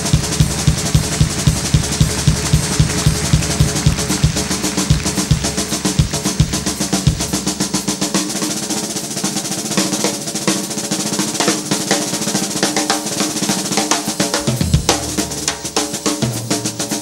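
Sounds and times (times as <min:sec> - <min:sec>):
bass drum thuds: 0:00.0 - 0:08.0, 0:14.4 - 0:15.5
snare drum rolls: 0:00.0 - 0:17.0.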